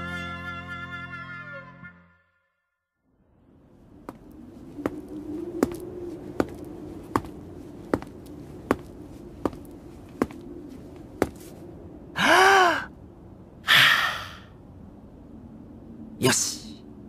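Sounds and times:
footsteps: 4.1 - 11.6
man breathing in and sighing: 13.6 - 14.6.

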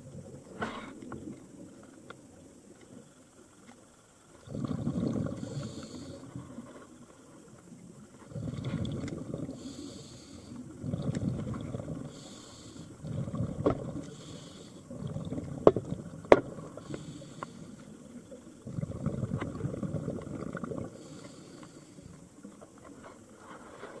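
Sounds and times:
exhaled bubbles rumbling underwater: 0.0 - 3.6, 4.3 - 23.3
inhaled air hissing through regulator: 4.6 - 6.6, 9.3 - 15.0, 16.6 - 18.4, 20.8 - 22.3.

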